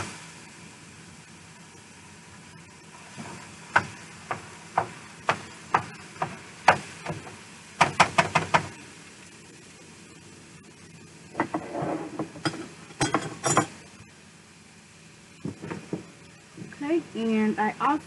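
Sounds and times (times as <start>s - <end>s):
meat frying hiss: 0.0s - 18.0s
utensil tapping skillet: 3.2s - 8.8s, 11.4s - 13.8s.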